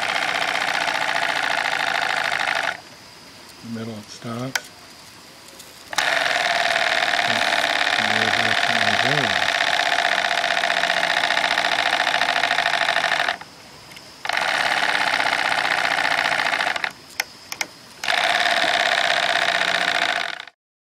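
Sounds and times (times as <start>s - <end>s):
model steam engine running: 0.0s - 2.7s, 6.0s - 13.4s.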